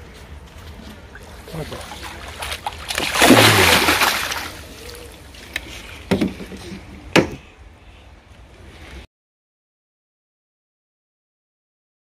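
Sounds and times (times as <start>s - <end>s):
loud water splash: 1.5s - 4.7s.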